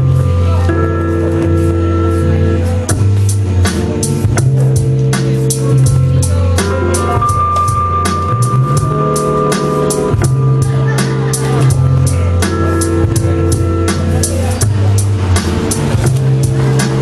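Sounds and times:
drum-machine groove: 0.0s - 17.0s
sustained bass notes: 0.0s - 17.0s.

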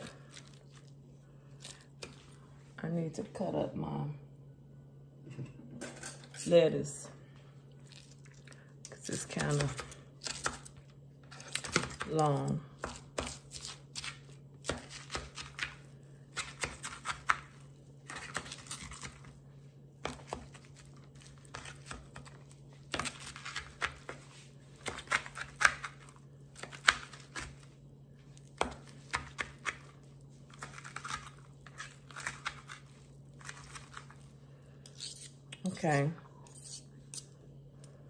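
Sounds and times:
low hum: 0.0s - 12.8s
knife and fork cutting lettuce: 8.9s - 19.4s, 20.0s - 27.8s, 28.4s - 35.8s, 36.5s - 37.4s.

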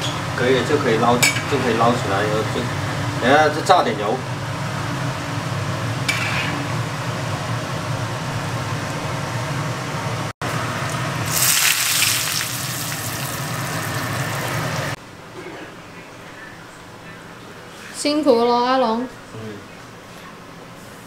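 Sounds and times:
hot oil crackling and sizzling: 10.8s - 15.0s.

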